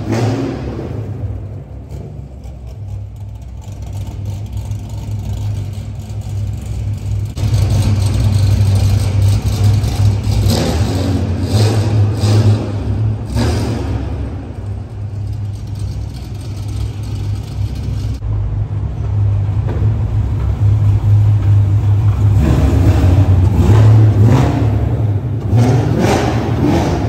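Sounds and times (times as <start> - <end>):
car engine rumble: 0.0 - 27.0
pickup truck engine rumble: 0.0 - 27.0.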